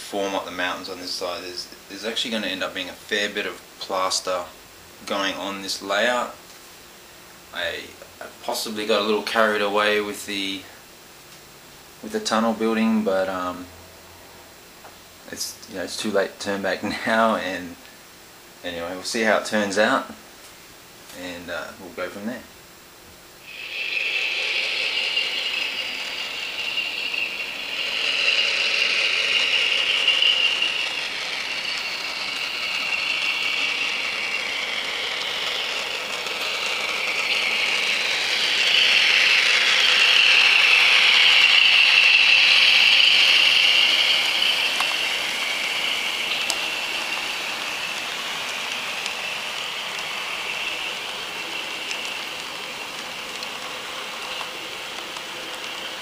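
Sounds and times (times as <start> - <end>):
model train motor whining: 23.4 - 56.0
wheels rolling on rails: 23.4 - 56.0.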